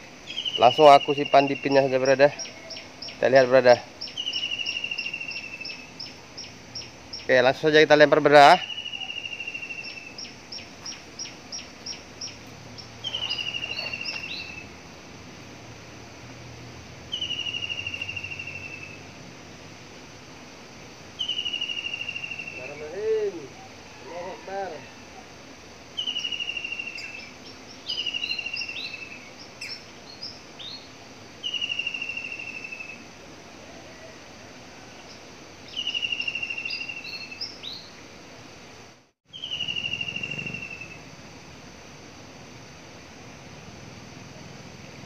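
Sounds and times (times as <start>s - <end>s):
songbird singing: 0.0s - 38.6s, 39.3s - 43.3s
faint background noise: 0.0s - 45.0s
high bird chirps: 0.2s - 14.7s, 17.1s - 19.0s, 21.2s - 23.0s, 26.0s - 33.0s, 35.1s - 37.9s, 39.3s - 41.0s
bird trilling: 0.2s - 14.8s, 17.1s - 19.0s, 21.2s - 24.4s, 25.9s - 33.0s, 35.1s - 37.9s, 39.3s - 41.1s.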